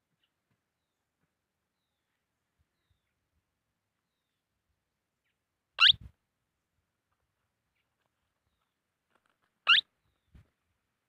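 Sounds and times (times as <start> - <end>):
parakeet shrill calls: 5.8 - 6.0, 9.6 - 9.9.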